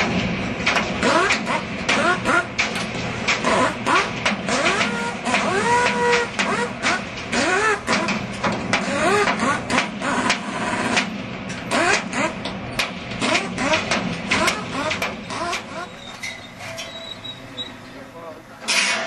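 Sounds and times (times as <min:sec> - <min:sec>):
metallic clicks and clanks: 0:00.0 - 0:17.8
power wrench bursts: 0:03.4 - 0:08.0, 0:11.7 - 0:12.4, 0:13.2 - 0:17.7.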